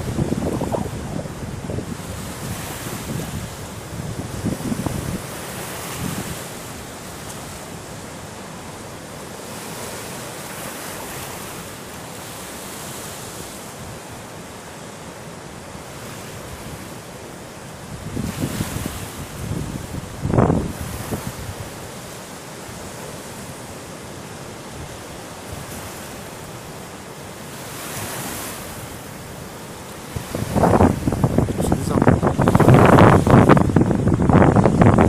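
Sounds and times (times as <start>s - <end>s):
wind buffeting microphone: 0.0s - 7.9s, 17.9s - 21.9s, 27.7s - 35.0s
river rushing in flood: 0.0s - 35.0s.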